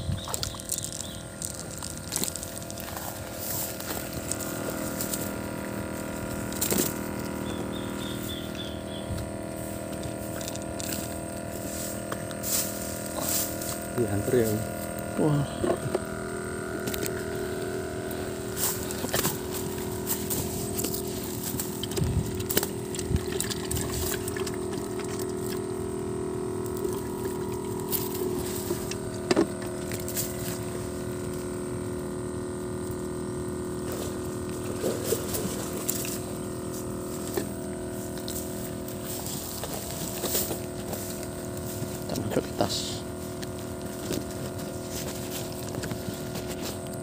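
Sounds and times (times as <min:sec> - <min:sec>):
motor droning: 0:00.0 - 0:47.0
handling clicks and rustles: 0:16.8 - 0:25.7, 0:33.9 - 0:47.0.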